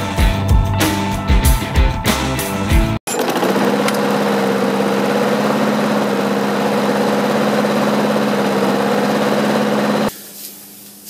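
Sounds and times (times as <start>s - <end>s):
lawn mower engine running: 3.1s - 10.1s.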